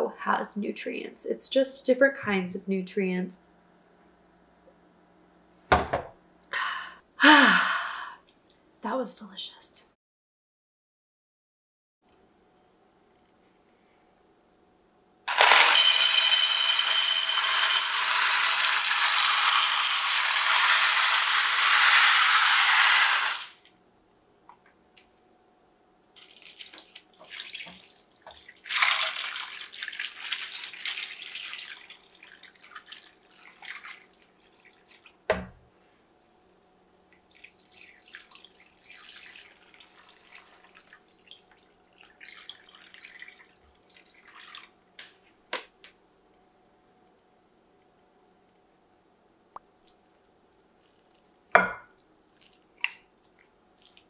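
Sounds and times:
knock: 5.7 - 6.1
dry pasta clattering into dish: 15.3 - 23.6, 26.2 - 31.7
milk pouring: 26.2 - 35.2, 37.2 - 44.8
liquid pouring and splashing: 26.2 - 35.3, 37.3 - 44.8, 52.3 - 54.0.

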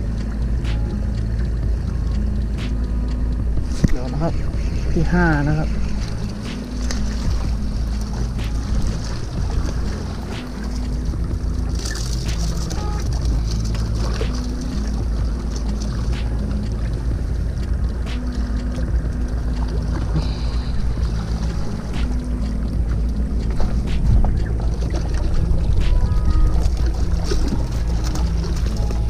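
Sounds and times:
wind rumbling on microphone: 0.0 - 29.0.

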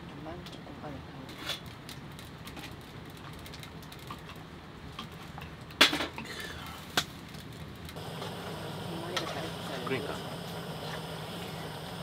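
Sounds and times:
low steady hum: 7.8 - 12.0.

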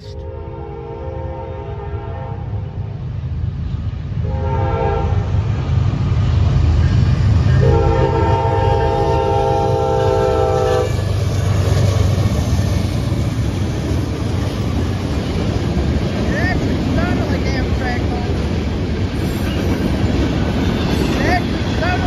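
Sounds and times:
locomotive air horn: 0.0 - 2.6, 4.2 - 5.3, 7.6 - 11.0
train rumble: 0.0 - 22.0.

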